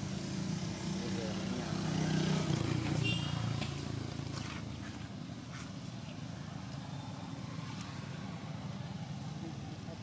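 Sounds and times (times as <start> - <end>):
passing vehicle engine hum: 0.0 - 10.0.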